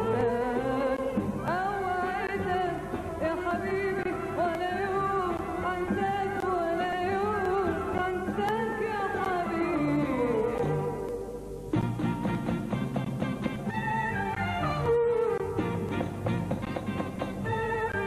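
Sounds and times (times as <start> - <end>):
woman singing: 0.0 - 11.3
orchestra playing: 11.8 - 18.0.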